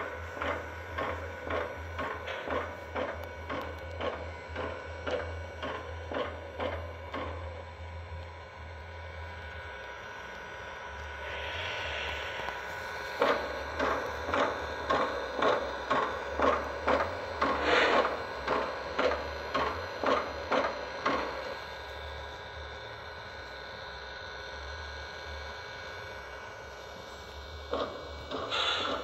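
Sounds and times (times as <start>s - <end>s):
model steam locomotive chuffing: 0.0s - 29.0s
low hum: 5.8s - 18.2s
steam hiss: 10.6s - 21.6s, 26.8s - 29.0s.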